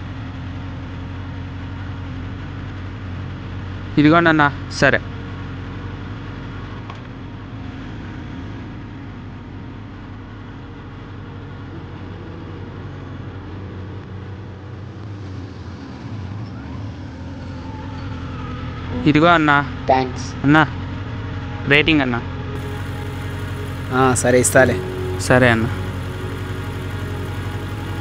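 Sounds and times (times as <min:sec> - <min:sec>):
vehicle engine hum: 0:00.0 - 0:28.0
road traffic noise: 0:22.3 - 0:28.0.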